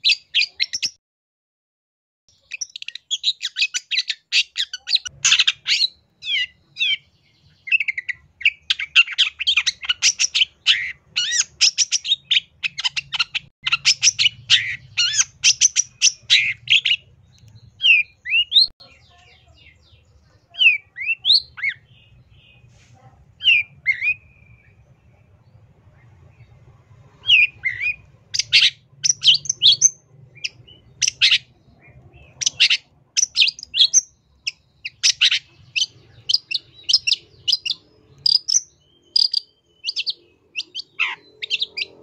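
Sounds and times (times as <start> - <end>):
bird chattering song: 0.0 - 1.0, 2.3 - 42.0
single slurred bird calls: 39.1 - 42.0.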